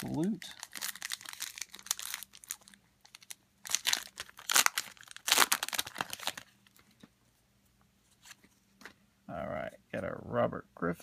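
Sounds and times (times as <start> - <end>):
foil wrapper tearing and crinkling: 0.0 - 6.5.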